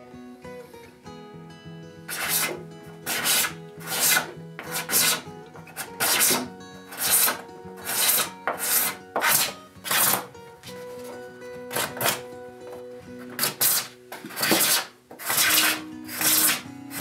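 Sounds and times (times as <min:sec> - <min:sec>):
quiet background music: 0:00.0 - 0:17.0
scraper rasping on epoxy: 0:02.1 - 0:10.3, 0:13.3 - 0:17.0.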